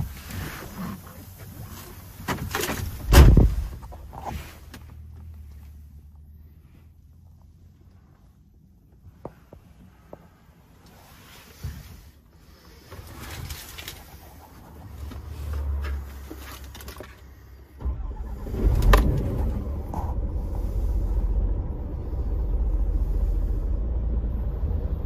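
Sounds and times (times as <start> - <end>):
diesel truck engine starting and idling: 12.6 - 25.0.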